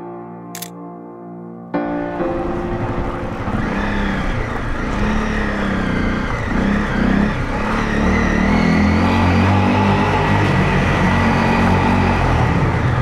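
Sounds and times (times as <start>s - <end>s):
motorcycle engine revving: 3.0s - 13.0s.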